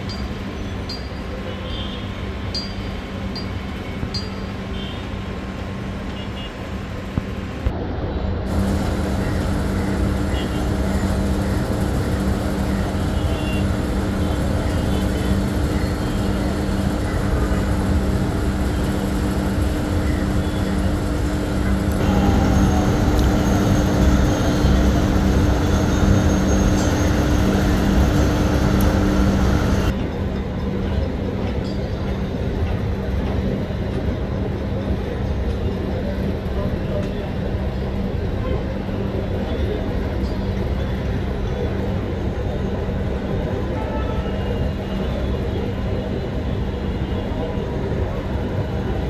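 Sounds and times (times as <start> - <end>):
street traffic noise: 0.0 - 49.0
low engine hum: 6.9 - 31.2.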